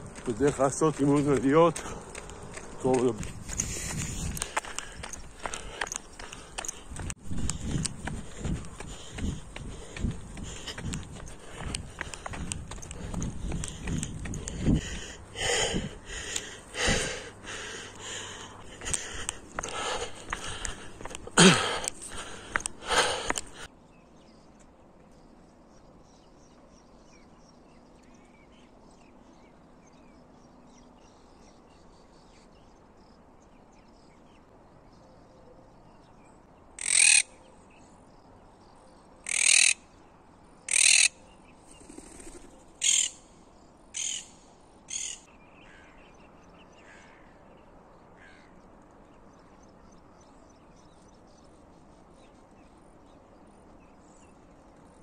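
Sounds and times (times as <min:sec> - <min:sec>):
small birds chirping: 0:00.0 - 0:55.0
crow cawing: 0:36.8 - 0:37.3, 0:39.2 - 0:39.8, 0:40.7 - 0:41.1, 0:42.8 - 0:43.1, 0:44.0 - 0:44.3, 0:46.8 - 0:47.4, 0:48.2 - 0:48.6.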